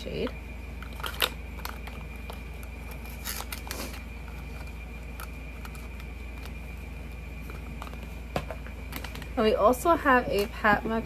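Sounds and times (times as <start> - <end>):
air conditioner humming: 0.0 - 11.0
packaging clicks and rustles: 0.8 - 9.4.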